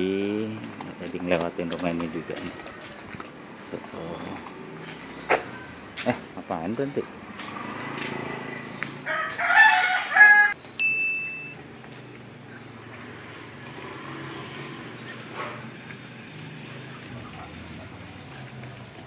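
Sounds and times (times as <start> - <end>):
rooster crowing: 9.0 - 10.6.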